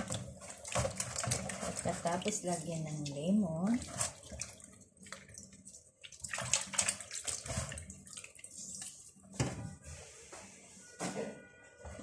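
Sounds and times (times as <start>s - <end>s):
water sloshing in a basin: 0.0s - 9.5s.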